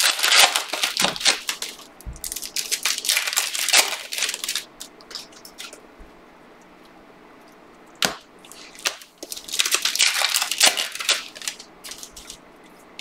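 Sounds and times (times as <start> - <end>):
foil wrapper crinkling: 0.0 - 5.8, 8.0 - 12.4.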